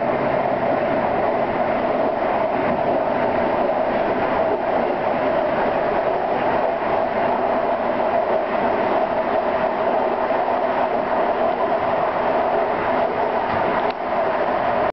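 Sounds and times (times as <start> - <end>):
train running on rails: 0.0 - 14.9.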